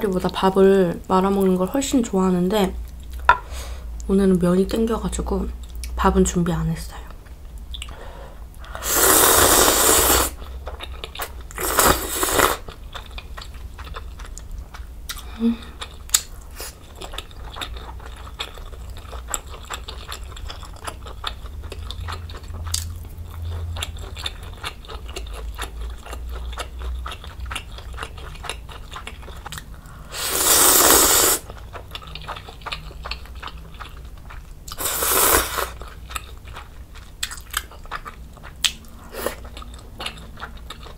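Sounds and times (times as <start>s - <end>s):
loud noodle slurping: 8.8s - 10.4s, 11.6s - 12.6s, 30.1s - 31.5s, 34.8s - 35.8s
soft chewing: 10.4s - 30.1s, 31.4s - 40.9s.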